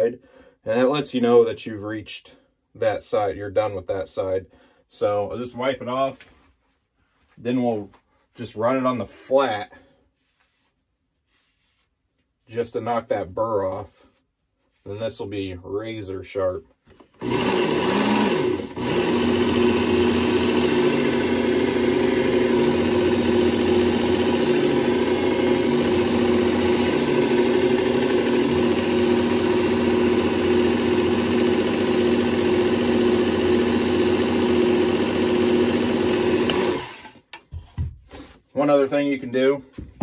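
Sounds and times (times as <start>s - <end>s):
belt sharpener motor running: 17.2s - 37.2s.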